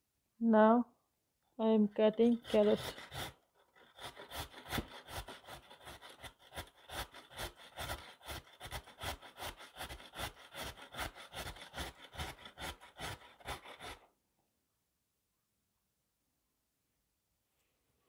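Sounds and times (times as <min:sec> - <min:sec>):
carrot grating on metal grater: 0:02.2 - 0:14.1.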